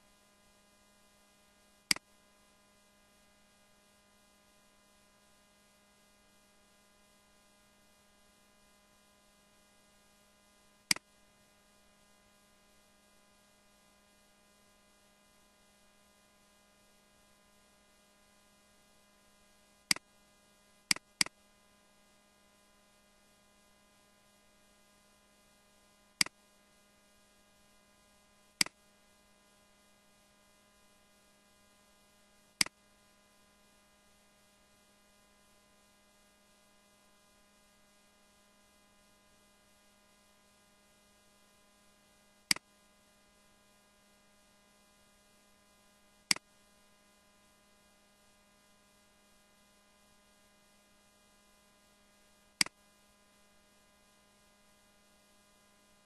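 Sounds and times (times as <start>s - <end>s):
low electrical hum: 0.0s - 56.0s
computer mouse clicks: 20.9s - 21.4s, 28.6s - 28.8s, 46.3s - 46.5s.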